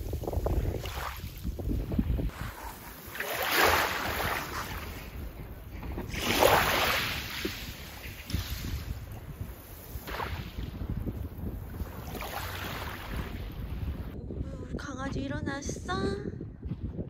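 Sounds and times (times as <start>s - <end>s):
wind rumbling on microphone: 0.0s - 17.0s
small waves washing onto gravel: 2.4s - 5.2s.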